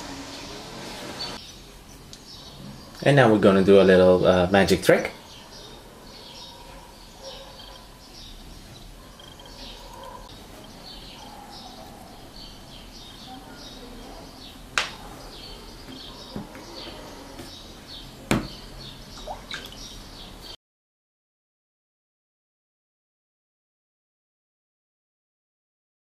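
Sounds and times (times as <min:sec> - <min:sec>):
birds chirping: 0:00.0 - 0:20.6.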